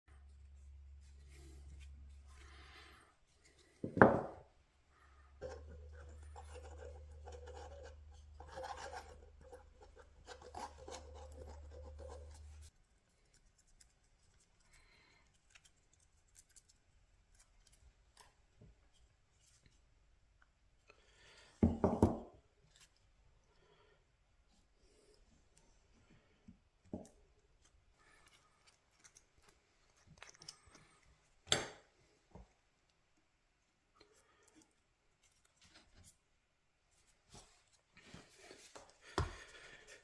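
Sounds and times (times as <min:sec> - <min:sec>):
hand tools scraping wood: 0:05.4 - 0:12.7
faint scratches and ticks: 0:05.4 - 0:19.8, 0:27.0 - 0:31.1.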